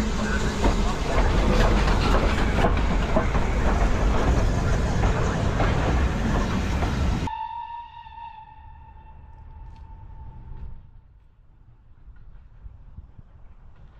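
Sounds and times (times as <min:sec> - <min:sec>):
steam train rumble and hiss: 0:00.0 - 0:07.3
wheels clicking over rail joints: 0:00.0 - 0:07.3.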